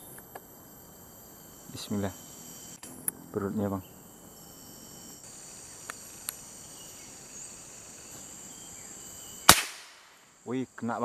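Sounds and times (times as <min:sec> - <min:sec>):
crickets and insects chirping: 0:00.0 - 0:11.0
gunshot: 0:09.5 - 0:10.2.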